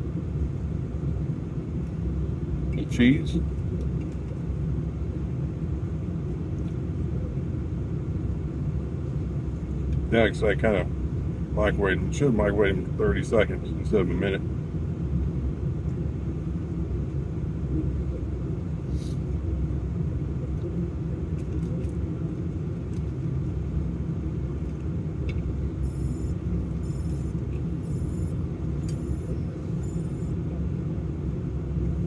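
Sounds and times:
vehicle engine idling: 0:00.0 - 0:32.0
faint high-pitched beeps: 0:25.8 - 0:30.4.

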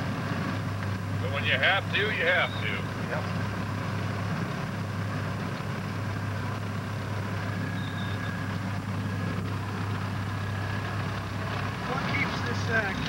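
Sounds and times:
snowcat engine droning: 0:00.0 - 0:13.0.

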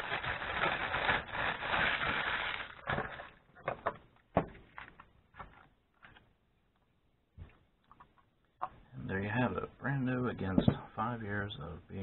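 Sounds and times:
plastic bag crinkling: 0:00.0 - 0:03.7.

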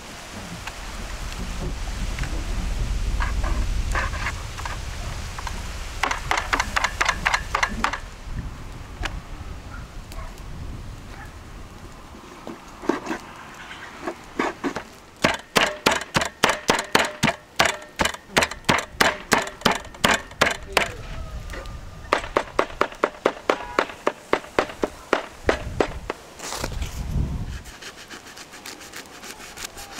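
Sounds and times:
knife chopping on wooden board: 0:14.7 - 0:20.9.

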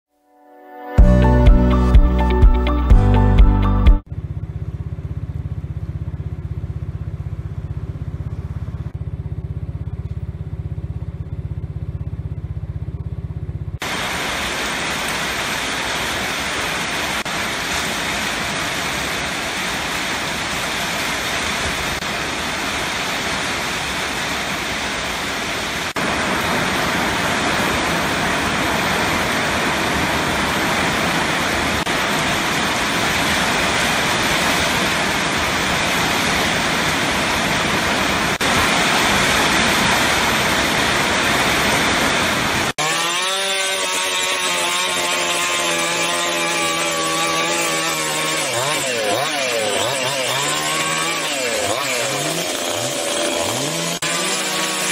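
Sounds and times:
low steady rumble: 0:04.1 - 0:13.8
heavy rain pouring: 0:13.8 - 0:42.8.

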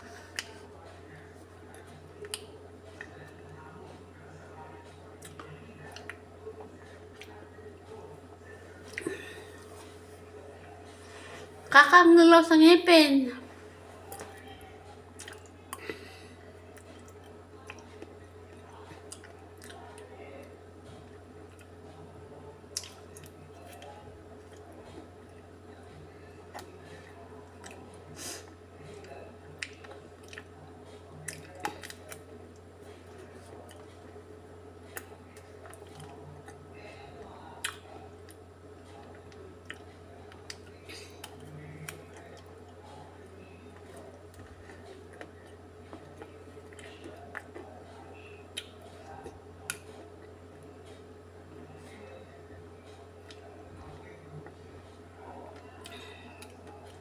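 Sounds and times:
steady low hum: 0:00.0 - 0:57.0
mouth sounds of eating: 0:13.9 - 0:57.0.

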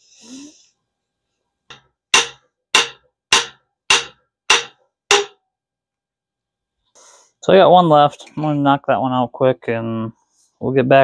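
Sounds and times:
hammer striking metal: 0:01.7 - 0:05.4.

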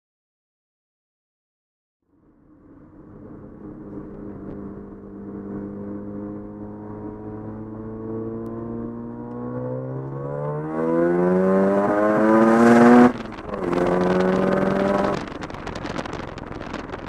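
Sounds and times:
rotary engine accelerating: 0:02.4 - 0:16.9.

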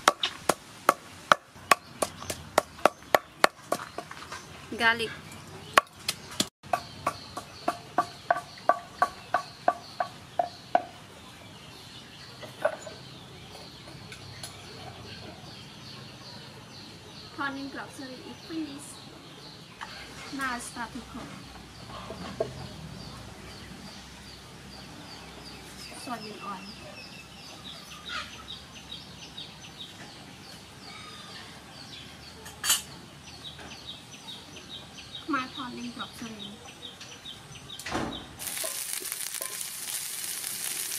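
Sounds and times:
pestle pounding in wooden mortar: 0:00.0 - 0:04.3, 0:05.8 - 0:11.0
birds chirping: 0:00.0 - 0:40.9.

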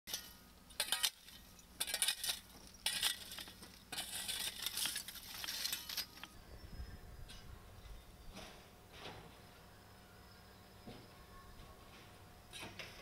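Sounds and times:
shovel scraping through ash: 0:00.1 - 0:06.3.

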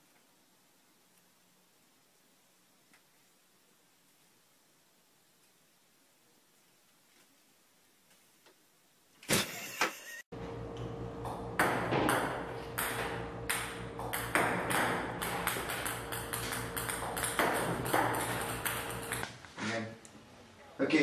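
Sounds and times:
ping-pong balls clicking on table: 0:11.6 - 0:19.3.

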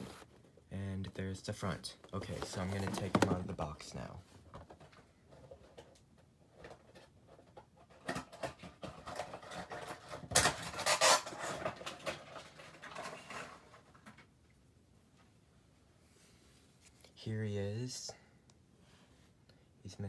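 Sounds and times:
cardboard box rustling and scraping: 0:00.0 - 0:00.3, 0:02.2 - 0:03.5.

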